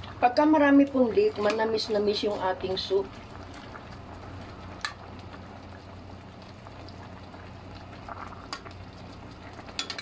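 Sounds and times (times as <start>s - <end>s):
soup simmering in a pot: 0.0s - 10.0s
steady low hum: 0.0s - 10.0s.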